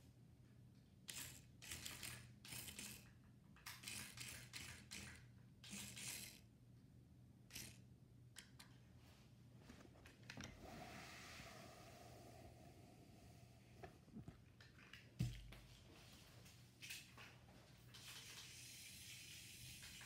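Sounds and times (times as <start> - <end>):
toy car motor whirring: 3.8 - 6.4.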